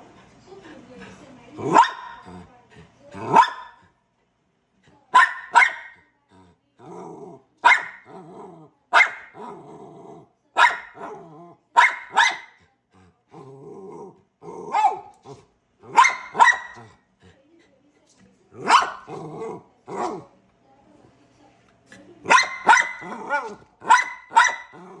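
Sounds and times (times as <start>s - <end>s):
small dog barking: 1.6s - 2.4s, 3.2s - 3.9s, 5.1s - 6.0s, 7.6s - 8.2s, 8.9s - 9.5s, 10.6s - 12.6s, 14.7s - 17.0s, 18.6s - 20.3s, 22.2s - 25.0s
dog growling: 1.6s - 3.4s, 6.3s - 8.7s, 9.3s - 11.7s, 12.9s - 16.0s, 18.5s - 20.3s, 22.6s - 25.0s.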